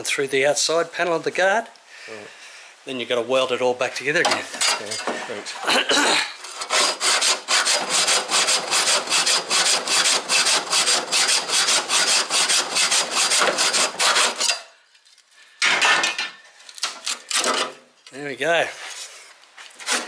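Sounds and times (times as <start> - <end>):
hacksaw rasping through sheet steel: 6.4 - 14.7, 19.8 - 20.0.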